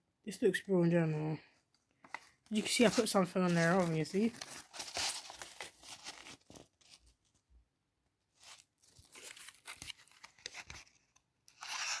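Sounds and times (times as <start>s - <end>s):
paper rustling and crinkling: 2.0s - 7.5s, 8.3s - 12.0s.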